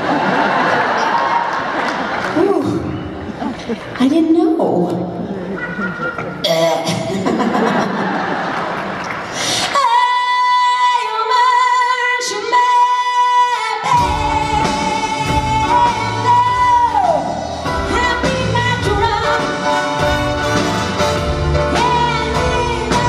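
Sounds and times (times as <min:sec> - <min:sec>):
woman singing into a microphone: 0:09.6 - 0:19.5, 0:21.7 - 0:23.0
band playing: 0:12.5 - 0:23.0.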